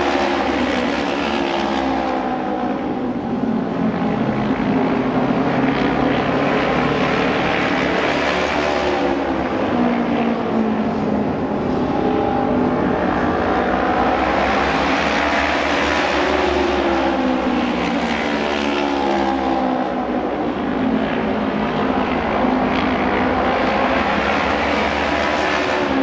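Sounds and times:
racing motorcycles passing: 0.0 - 26.0.

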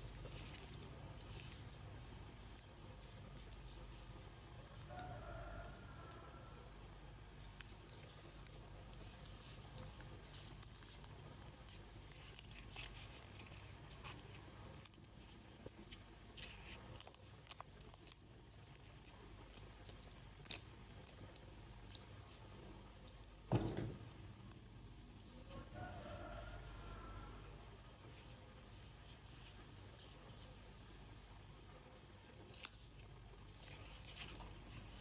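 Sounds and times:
paper crinkling and folding: 0.0 - 5.1, 6.9 - 22.8, 28.0 - 31.2, 32.3 - 35.0
low steady hum: 0.0 - 35.0.

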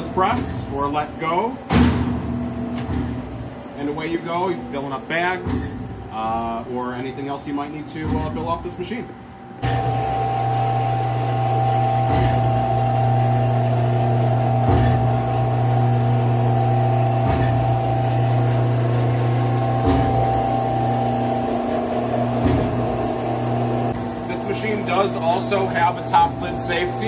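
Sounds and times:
meat grinder electric hum: 0.0 - 4.0, 9.6 - 27.0.

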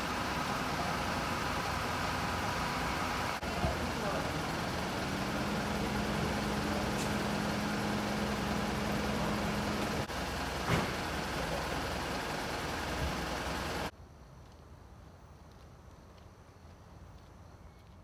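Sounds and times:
engine hum: 0.0 - 13.9
minibus engine idling: 0.0 - 13.9.

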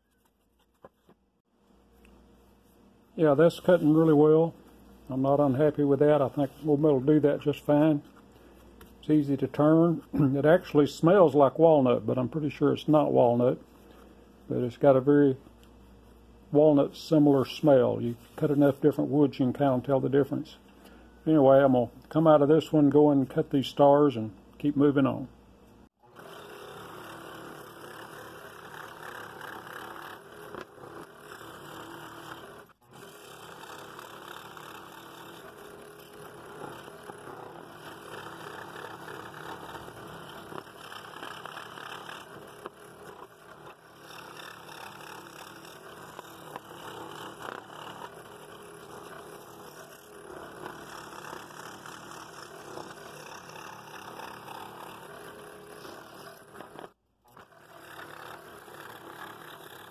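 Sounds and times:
scroll saw cutting wood: 3.3 - 4.5, 26.0 - 59.9.

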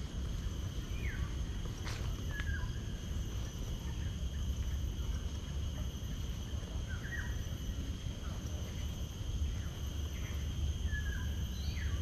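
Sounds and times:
high-pitched insect trill: 0.0 - 12.0
bird chirps: 9.4 - 12.0.

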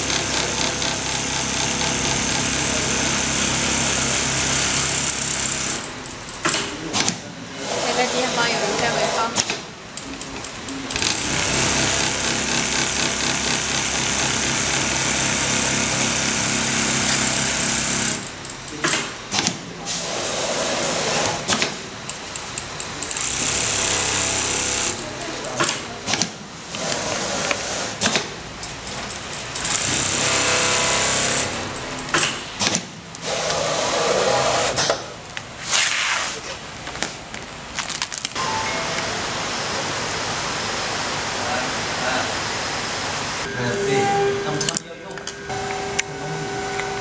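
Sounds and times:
sewing machine stitching: 10.9 - 18.3, 23.0 - 25.0
sewing machine clicks and clacks: 25.6 - 30.3.

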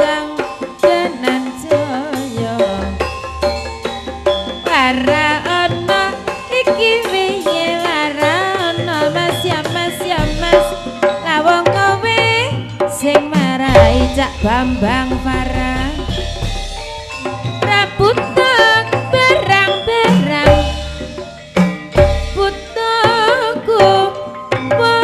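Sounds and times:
gamelan pitched percussion: 0.0 - 25.0
hand drum strokes: 0.0 - 25.0
person singing: 4.7 - 16.2.

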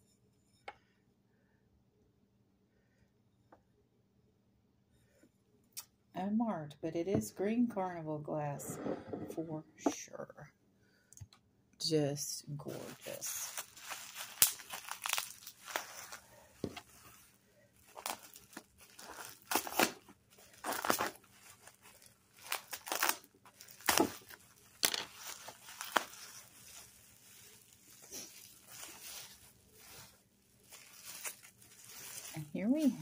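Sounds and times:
bubble wrap rustling and crackling: 12.6 - 33.0.

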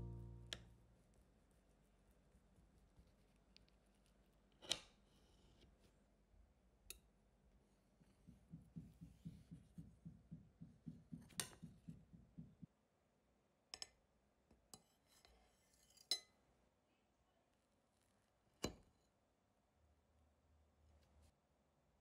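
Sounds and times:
soft low thumps: 8.0 - 12.7.

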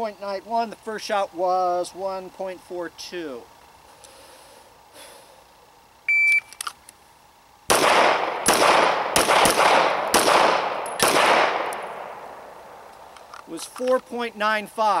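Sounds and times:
shot timer beep: 6.1 - 6.6
pistol shots with echo: 7.7 - 12.2.

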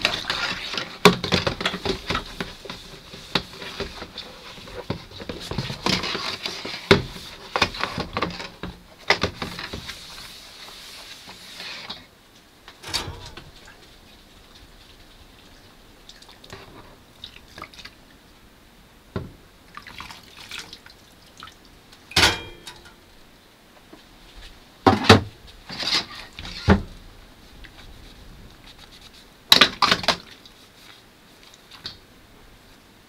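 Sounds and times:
dishes clattering on metal bowl: 12.8 - 13.8, 22.1 - 23.0.

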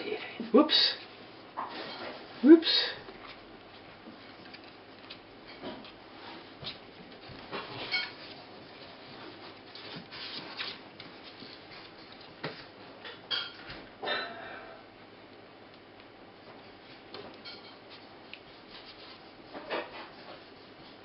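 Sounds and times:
puppies scratching on carpet: 3.0 - 13.0, 16.0 - 21.0.

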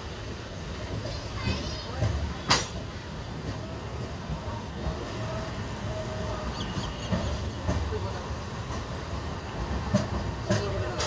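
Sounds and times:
train coaches rumbling: 0.0 - 11.0.

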